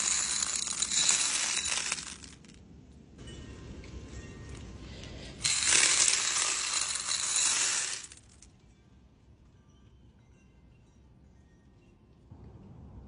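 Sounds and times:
stones clattering into bin: 0.0 - 2.6, 5.4 - 8.4.

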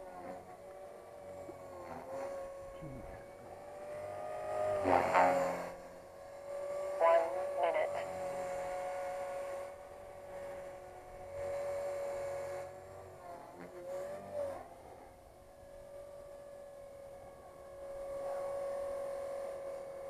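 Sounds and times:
rc helicopter whining: 0.0 - 20.0.

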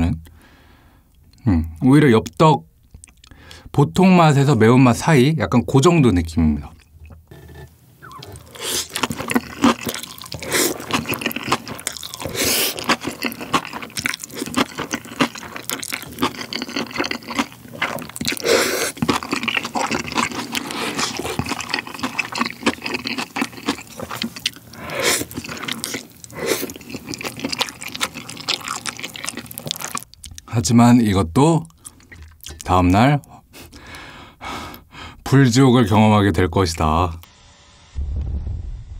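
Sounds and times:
noodles slurping: 7.0 - 30.4
chewing with wet smacks: 8.0 - 30.5, 31.6 - 33.8.

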